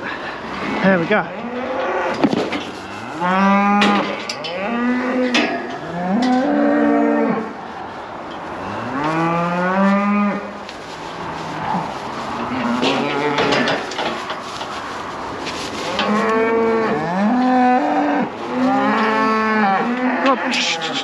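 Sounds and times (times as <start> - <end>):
cattle mooing: 0.6 - 2.2, 2.8 - 7.5, 11.6 - 13.8, 15.8 - 21.0.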